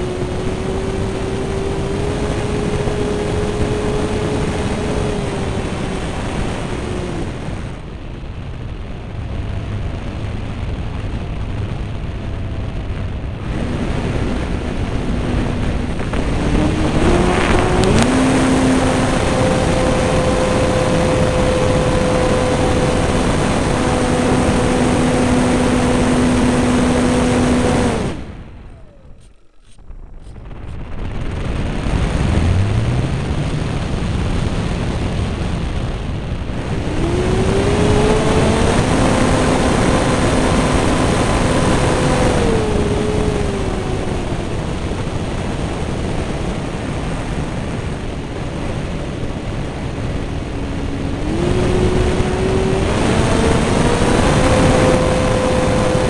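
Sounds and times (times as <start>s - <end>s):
model plane motor and propeller: 0.0s - 7.9s, 13.4s - 31.0s, 36.6s - 56.0s
wind rush: 0.0s - 56.0s.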